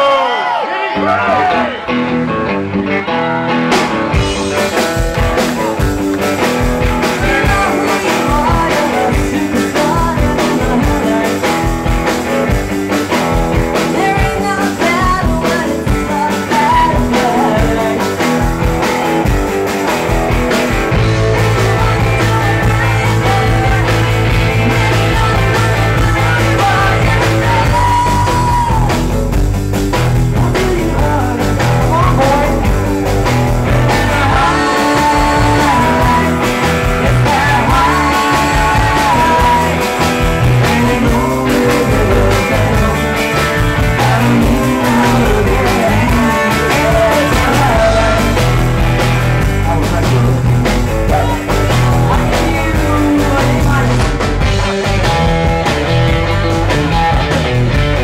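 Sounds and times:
live rock band playing: 0.0 - 58.0
bass guitar low notes: 1.0 - 58.0
woman singing: 7.2 - 11.5, 13.8 - 18.3, 21.0 - 29.0, 30.4 - 32.7, 33.7 - 43.2, 43.9 - 48.4, 51.1 - 54.1.

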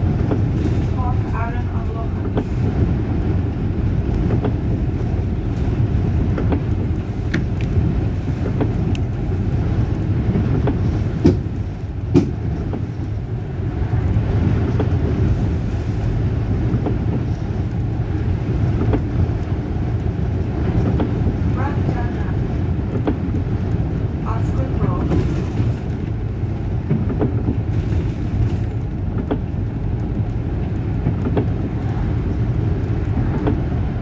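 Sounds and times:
bus engine and road rumble: 0.0 - 34.0
sharp knocks: 10.6 - 11.5, 12.1 - 12.4.

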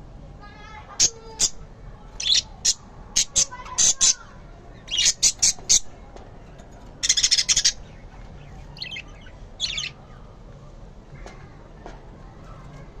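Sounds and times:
budgerigars chirping: 4.8 - 5.9, 7.0 - 10.0.

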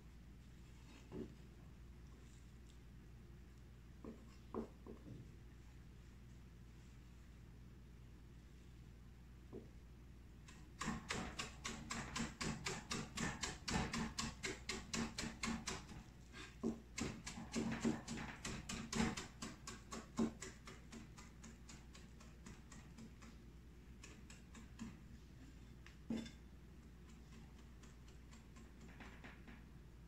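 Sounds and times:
knife chopping on cutting board: 10.5 - 16.0, 16.6 - 23.4.

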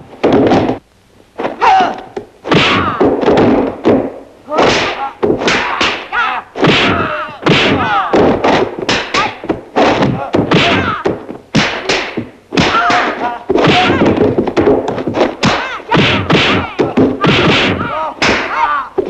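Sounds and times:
punch and kick impacts: 0.0 - 0.8, 1.4 - 18.8
fighters shouting and grunting: 1.5 - 3.1, 4.5 - 11.2, 12.6 - 14.3, 15.4 - 19.0.

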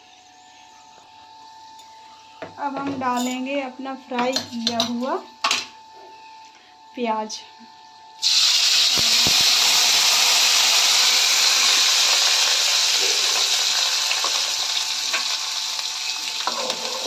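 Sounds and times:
paste sizzling in hot oil: 8.2 - 17.0.

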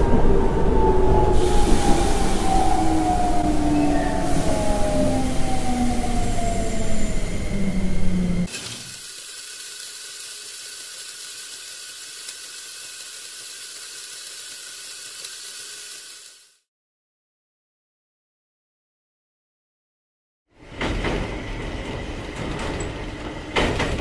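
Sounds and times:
wheels rattling on plastic track: 8.5 - 16.6
toy train motor whirring: 8.5 - 16.7.

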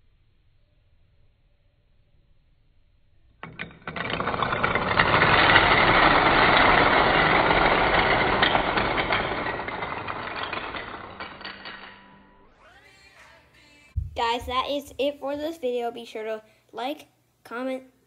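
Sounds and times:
dominoes toppling clatter: 3.4 - 12.2.

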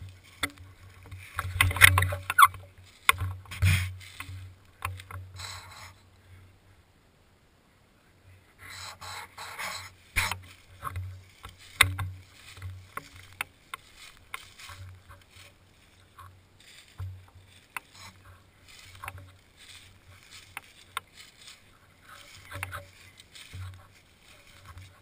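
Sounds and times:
footsteps in dry leaves: 0.0 - 6.0, 8.6 - 25.0
leaves crackling: 0.0 - 6.8, 8.0 - 25.0.

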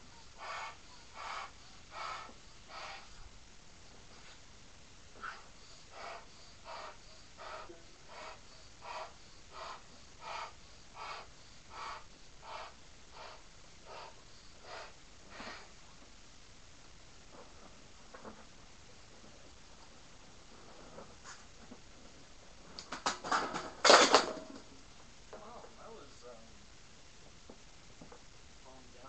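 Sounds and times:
balloon being inflated: 0.0 - 3.2, 5.1 - 15.8.

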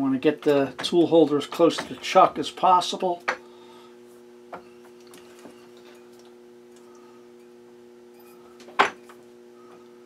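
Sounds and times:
steady electrical hum: 0.0 - 10.0.

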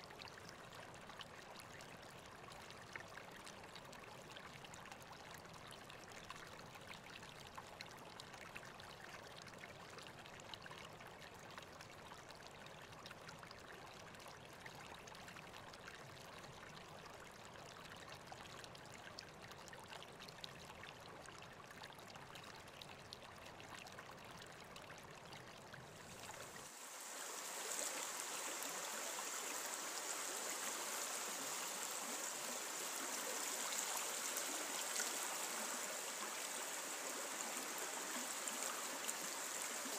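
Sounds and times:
river water rushing: 26.1 - 39.9.

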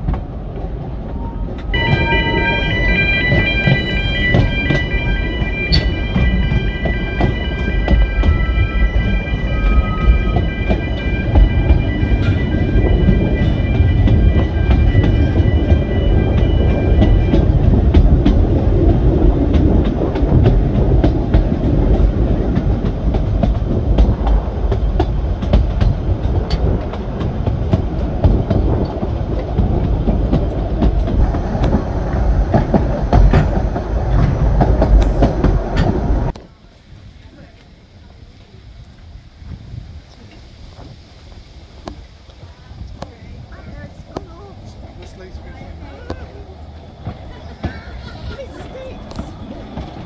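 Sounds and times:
train wheels rumbling on rails: 0.0 - 50.0
high-pitched ringing tone: 1.8 - 17.4.

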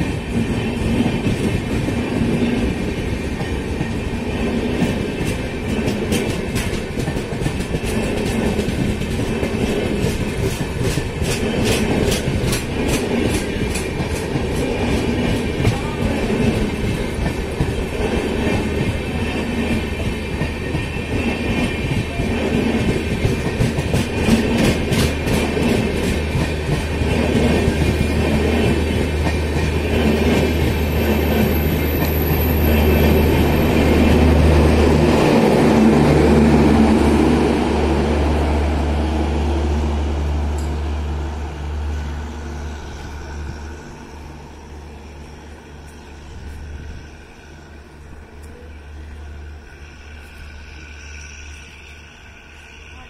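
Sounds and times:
wheels clacking over rail joints: 0.0 - 37.4
train coaches rumbling past: 0.0 - 53.0.

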